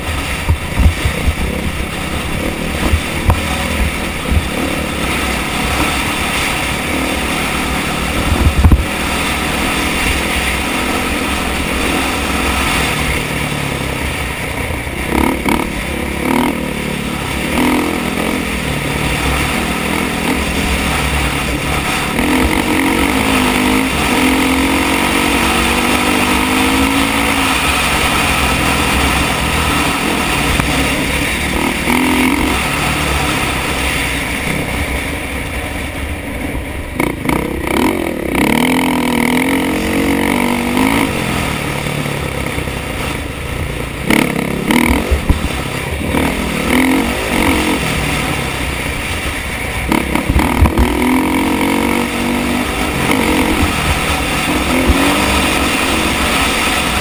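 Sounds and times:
wind buffeting microphone: 0:00.0 - 0:07.0, 0:08.0 - 0:10.7
dirt bike engine running: 0:00.0 - 0:57.0.

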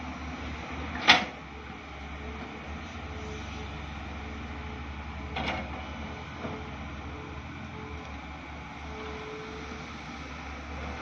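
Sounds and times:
excavator diesel engines running: 0:00.0 - 0:11.0.

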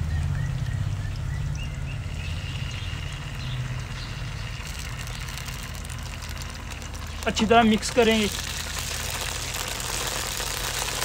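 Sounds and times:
low motor drone: 0:00.0 - 0:11.0
onions sizzling in oil: 0:03.2 - 0:11.0.

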